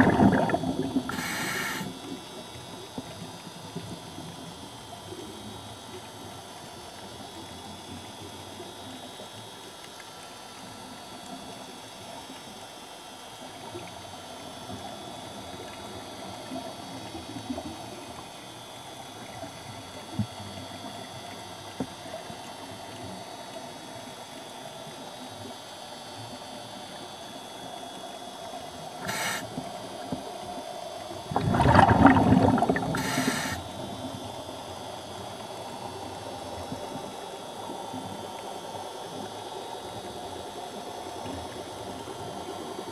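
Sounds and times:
underwater hiss: 0.0 - 2.2, 28.9 - 30.2, 31.3 - 34.2
faint hum: 0.0 - 42.9.

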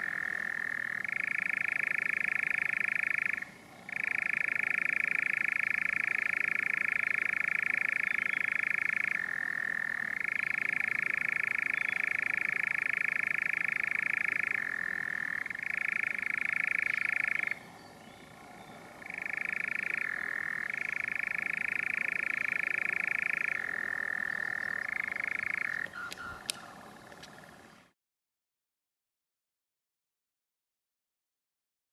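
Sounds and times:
nightjar churring trill: 0.0 - 17.6, 18.4 - 27.7.

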